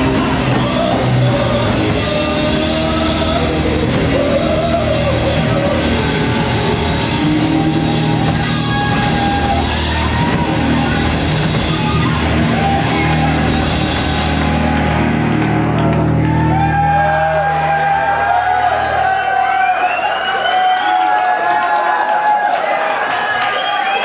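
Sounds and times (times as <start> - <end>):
shouted singing: 0.0 - 14.4
live hard rock band: 0.0 - 18.4
crowd shouting: 0.0 - 24.0.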